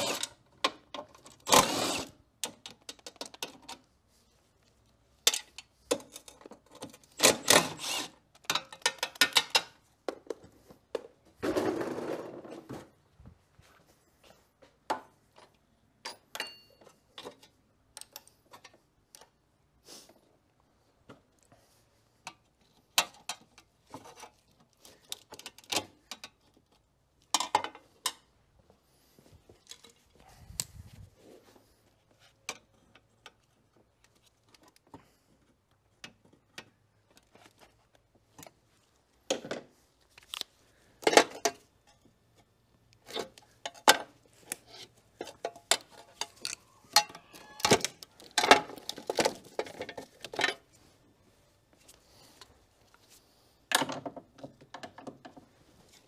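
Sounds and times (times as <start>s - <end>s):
metal tools clinking: 16.0s - 17.0s.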